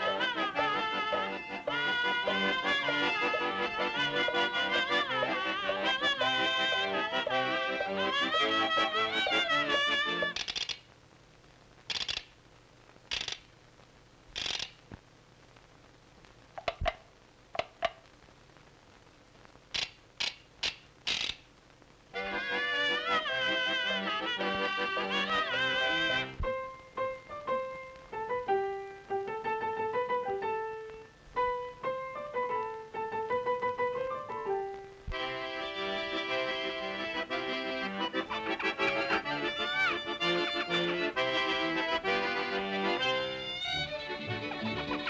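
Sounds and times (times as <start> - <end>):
reedy accordion-like chord: 0.0 - 10.4, 22.2 - 26.4, 35.2 - 45.0
hand crank ratcheting rasps: 10.4 - 10.8, 11.9 - 12.3, 13.1 - 13.4, 14.4 - 14.8, 19.8 - 21.4
piano melody of single notes: 23.0 - 37.2.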